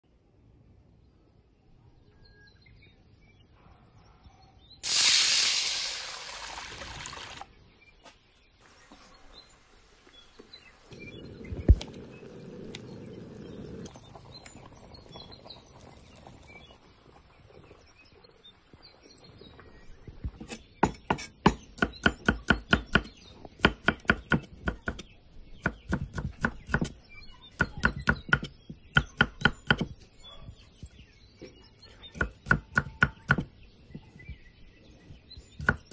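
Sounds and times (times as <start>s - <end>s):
loud hiss: 4.8s - 7.4s
knife chopping on wooden board: 20.5s - 25.1s, 27.6s - 29.9s.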